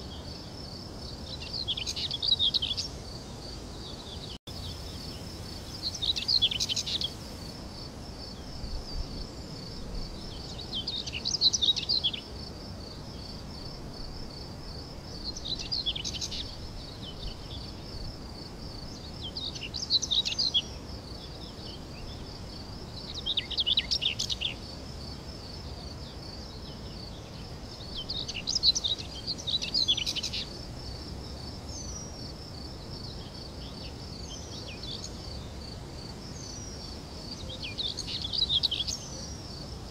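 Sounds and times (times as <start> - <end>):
birds singing: 1.1 - 3.0, 3.8 - 7.2, 10.2 - 12.3, 15.2 - 17.8, 18.8 - 22.3, 23.0 - 24.6, 26.5 - 30.6, 33.0 - 39.6.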